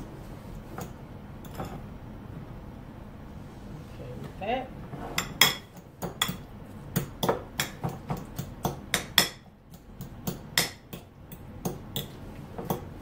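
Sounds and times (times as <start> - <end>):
fork tapping ceramic bowl: 7.0 - 12.9.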